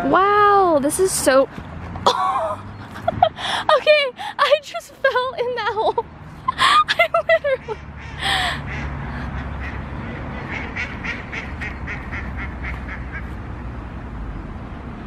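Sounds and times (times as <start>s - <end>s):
duck quacking: 7.6s - 13.4s.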